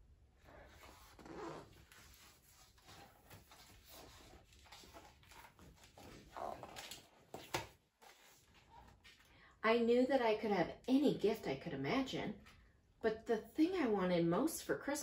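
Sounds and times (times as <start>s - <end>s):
book pages rustling: 0.4s - 9.4s.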